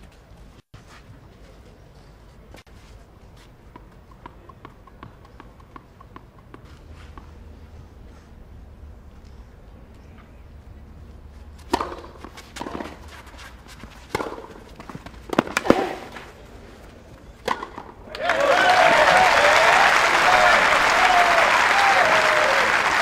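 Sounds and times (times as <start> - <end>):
tennis ball struck and bouncing: 3.7 - 7.4, 11.6 - 16.3, 17.4 - 18.0
spectators applauding: 18.1 - 23.0.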